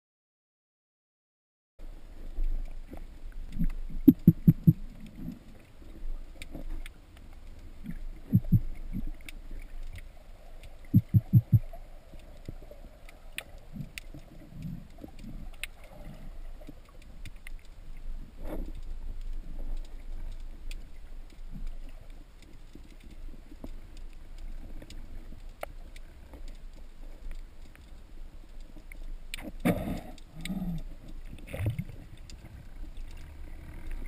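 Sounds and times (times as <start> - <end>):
murky underwater background: 1.9 - 34.0
sharp clicks: 3.5 - 4.8
muffled underwater thumps: 3.6 - 4.8, 7.9 - 8.7, 10.9 - 11.7.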